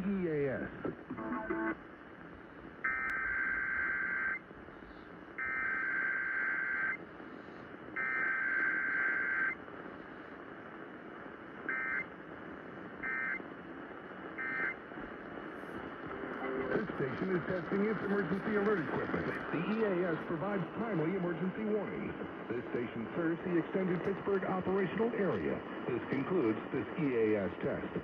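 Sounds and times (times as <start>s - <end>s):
radio static hiss: 0.0s - 28.0s
buzzing data bursts: 14.4s - 14.8s.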